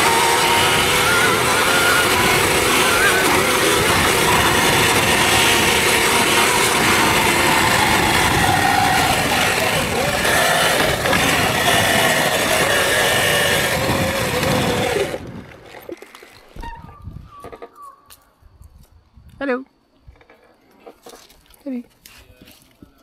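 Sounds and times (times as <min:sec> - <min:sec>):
electric motor whine: 0:00.0 - 0:15.7
wind noise: 0:00.0 - 0:15.8, 0:16.6 - 0:17.5, 0:18.4 - 0:19.4
tyre noise: 0:00.0 - 0:17.0.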